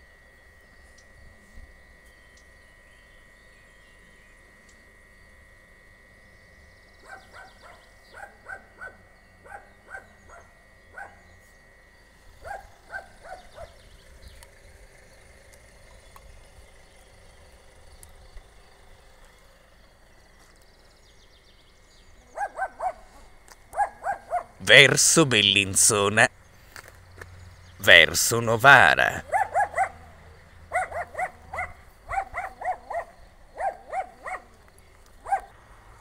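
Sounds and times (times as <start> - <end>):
dog barking: 7.0 - 11.3, 12.4 - 13.8, 22.3 - 24.6, 29.2 - 34.6, 35.2 - 35.5.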